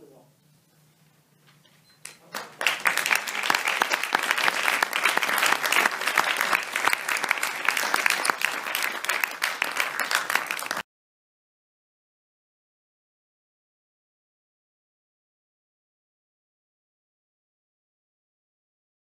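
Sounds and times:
audience applauding: 2.2 - 10.8.

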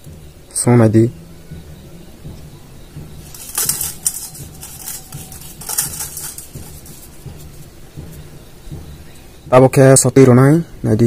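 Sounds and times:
salt pattering on steel bowl: 3.2 - 7.7.

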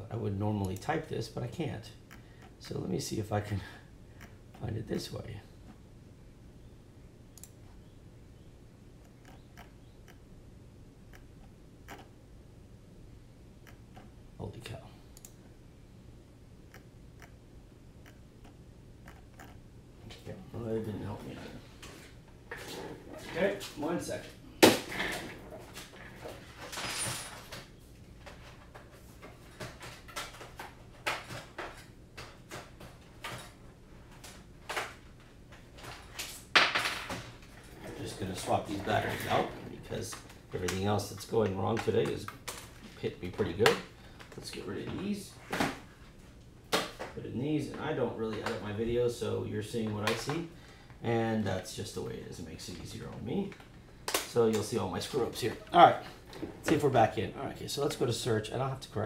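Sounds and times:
low steady hum: 0.0 - 59.0
computer mouse clicking: 9.0 - 10.2, 11.1 - 12.1, 15.2 - 15.4, 18.0 - 19.6
objects clattering: 24.6 - 35.0, 35.6 - 40.4.

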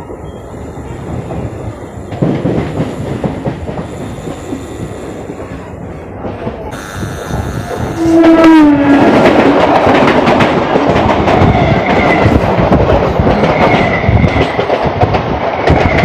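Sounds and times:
train wheels clattering on track: 0.0 - 16.0
train horn: 7.3 - 9.9.

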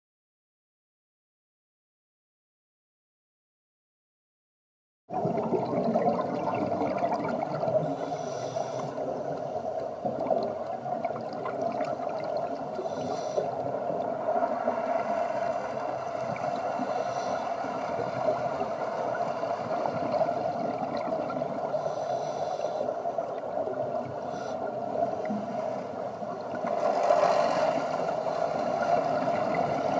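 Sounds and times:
exhaled bubbles bursting: 5.1 - 7.9, 10.0 - 12.8, 19.7 - 21.7
muffled underwater regulator breathing: 7.7 - 9.8, 12.6 - 14.0, 14.6 - 18.1, 21.6 - 23.2, 24.1 - 26.2.

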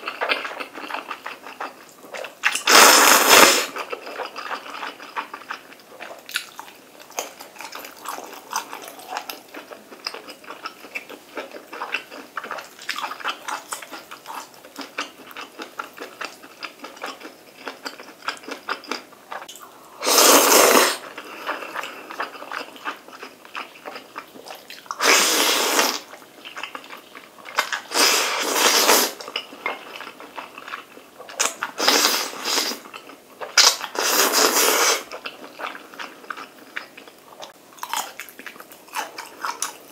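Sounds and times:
loud noodle slurps: 2.5 - 3.8, 20.0 - 21.1, 25.0 - 26.1, 27.8 - 29.2, 31.8 - 32.8, 33.9 - 35.1
wet chewing and smacking: 3.8 - 19.6, 21.4 - 25.0, 35.1 - 39.9.

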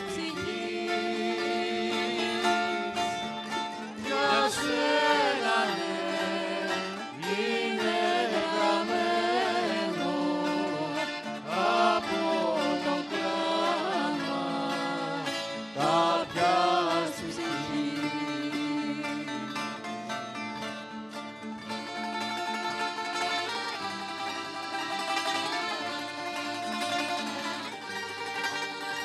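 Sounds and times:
person singing: 0.0 - 19.9
plucked string band playing: 0.0 - 29.0.

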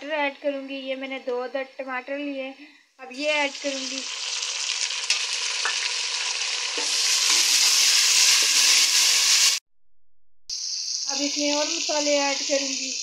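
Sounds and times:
tomatoes sizzling in hot fat: 3.1 - 9.6, 10.5 - 13.0.

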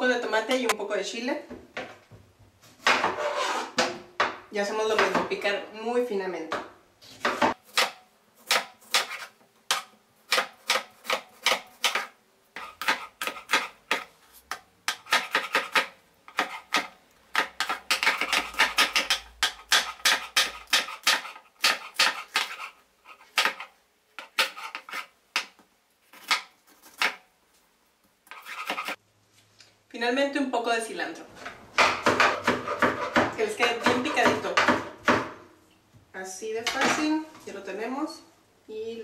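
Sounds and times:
knife chopping on cutting board: 7.2 - 22.7, 31.8 - 35.4.

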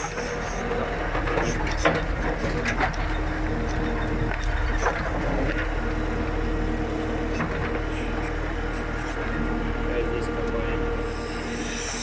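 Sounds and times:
backhoe knocks and clanks: 0.0 - 6.2, 7.2 - 9.3
diesel engine running: 0.0 - 12.0.

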